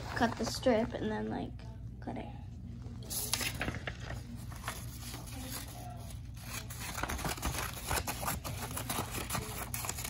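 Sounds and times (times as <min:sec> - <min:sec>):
paper rustling and crinkling: 0:03.0 - 0:10.0.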